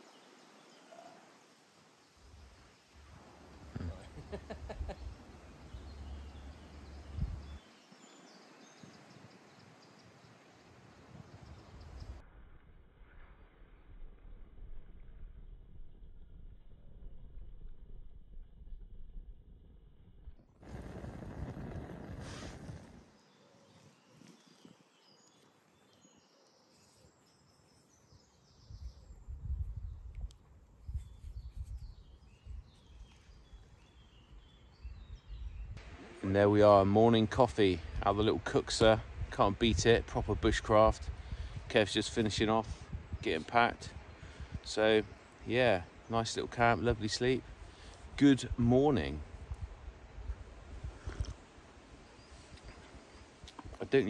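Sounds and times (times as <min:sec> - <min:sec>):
faint birdsong: 0:00.0 - 0:12.2, 0:20.7 - 0:54.0
low rumble on microphone: 0:03.0 - 0:07.6, 0:11.2 - 0:23.1, 0:34.8 - 0:51.5.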